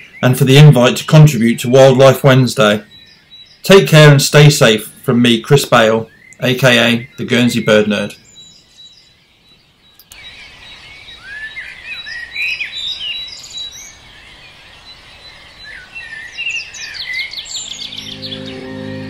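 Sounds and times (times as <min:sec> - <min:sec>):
songbirds singing: 0:00.0 - 0:19.0
music with low notes: 0:17.8 - 0:19.0.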